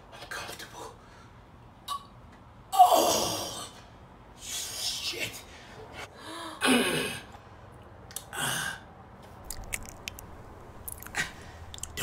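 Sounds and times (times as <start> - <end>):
mouth clicks: 9.4 - 12.0.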